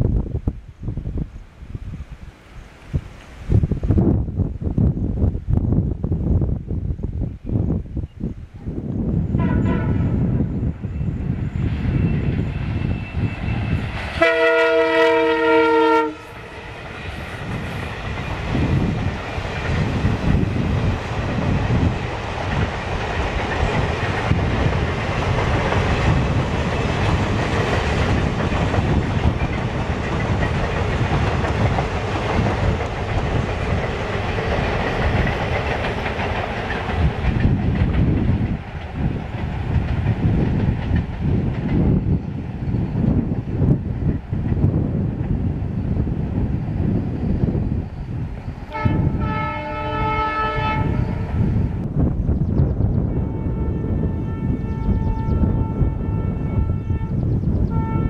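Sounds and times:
locomotive horn blast: 0:09.4 - 0:10.3, 0:14.1 - 0:16.5, 0:48.7 - 0:51.2, 0:53.1 - 0:58.0
train wheels clickety-clack: 0:11.7 - 0:45.6.

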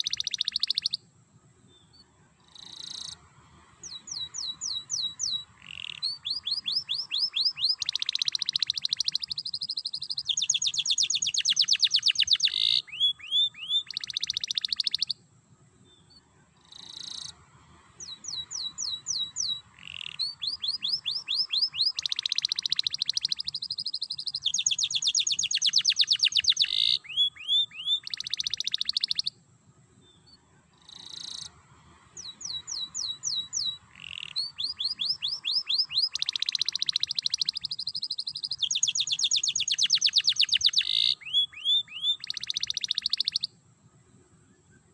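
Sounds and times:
canary singing trills: 0:00.0 - 0:01.1, 0:03.8 - 0:15.2, 0:18.0 - 0:29.4, 0:32.2 - 0:43.6.

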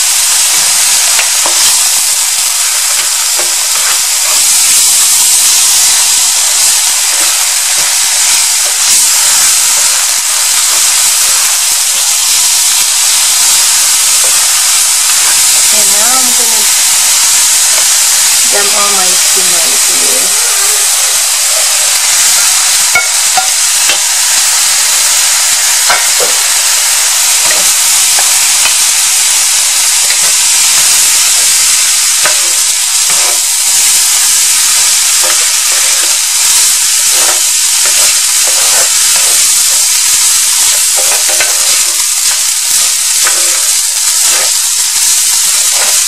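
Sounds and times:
rice sizzling in oil: 0:00.0 - 0:46.0
spatula scraping a pan: 0:32.2 - 0:33.8, 0:34.4 - 0:44.6.

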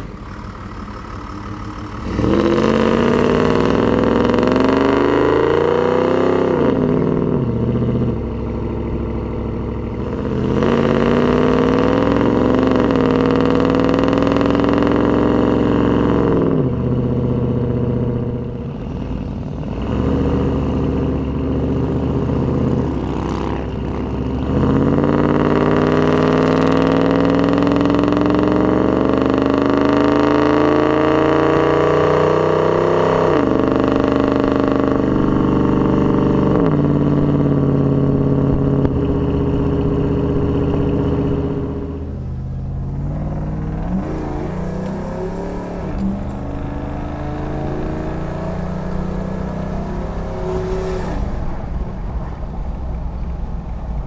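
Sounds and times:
car engine accelerating: 0:00.0 - 0:54.0.

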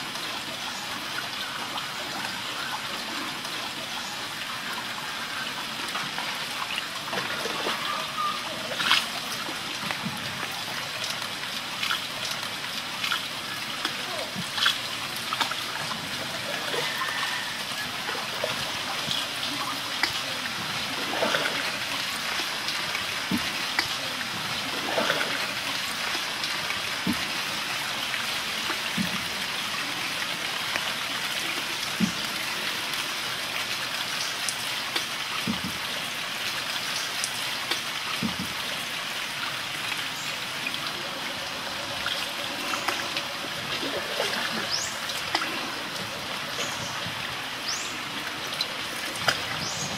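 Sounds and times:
small water splash: 0:05.7 - 0:49.9
water lapping against canoe: 0:06.9 - 0:10.8, 0:12.9 - 0:30.0, 0:31.4 - 0:33.1, 0:34.9 - 0:36.1, 0:37.7 - 0:38.9, 0:39.5 - 0:49.9.

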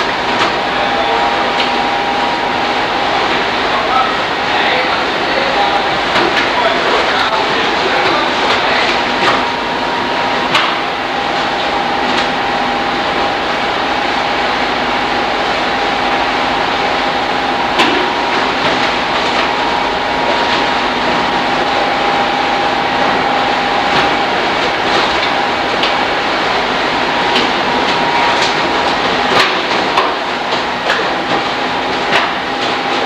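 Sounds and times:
machinery humming: 0:00.0 - 0:33.0.

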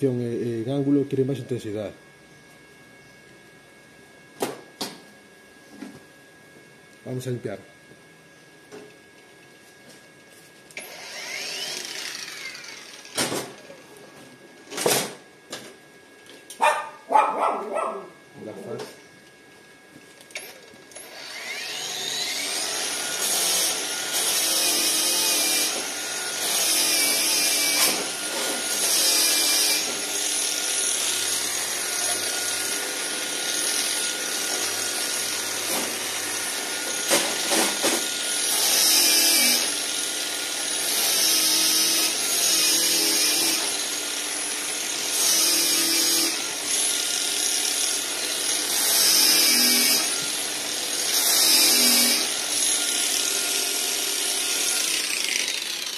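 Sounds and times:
angle grinder motor whine: 0:09.6 - 0:14.8, 0:18.2 - 0:55.9
angle grinder grinding steel: 0:10.8 - 0:13.2, 0:21.0 - 0:55.9.

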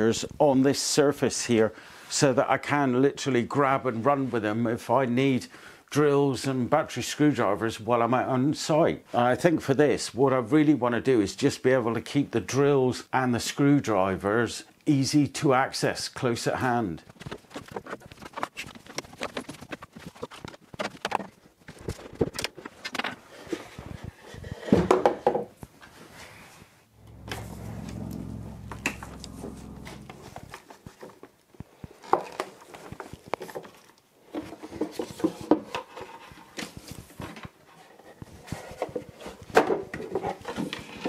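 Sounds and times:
low steady hum: 0:26.9 - 0:30.6.

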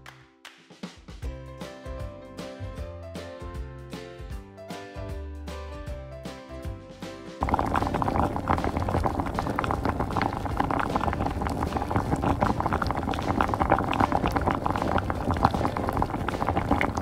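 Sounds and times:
water boiling in a saucepan: 0:07.4 - 0:17.0.

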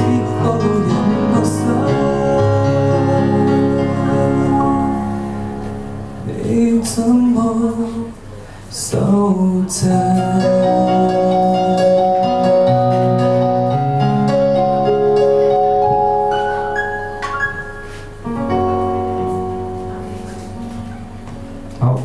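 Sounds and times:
man singing: 0:00.0 - 0:05.2, 0:06.2 - 0:12.6
electric keyboard chords: 0:00.0 - 0:22.0.

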